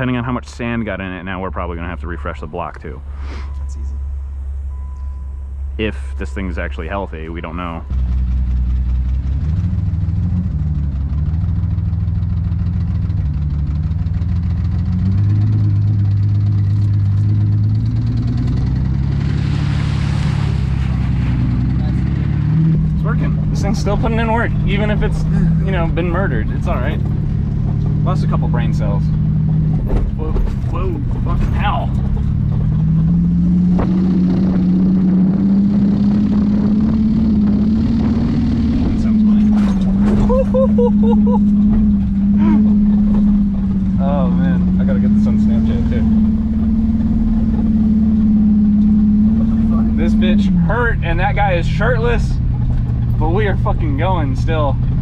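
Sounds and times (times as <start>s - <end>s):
car engine running: 0.0s - 55.0s
tyres splashing through puddle: 18.6s - 22.5s.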